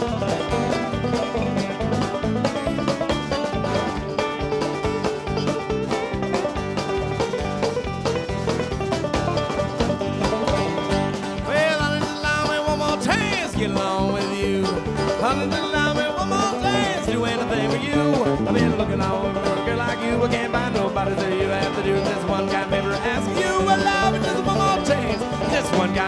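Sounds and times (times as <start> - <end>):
band playing instrumental jam: 0.0 - 26.0
lead guitar bent gliding notes: 16.1 - 20.6.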